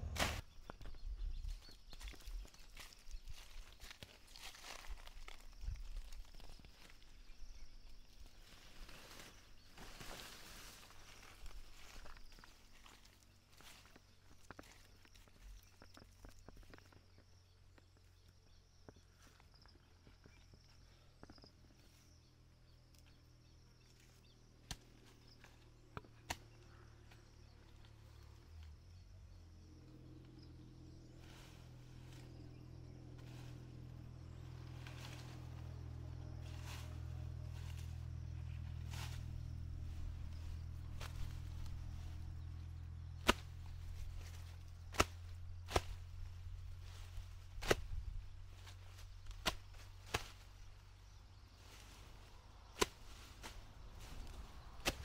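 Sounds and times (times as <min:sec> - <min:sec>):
low hum: 0:00.0 - 0:01.5, 0:26.6 - 0:55.0.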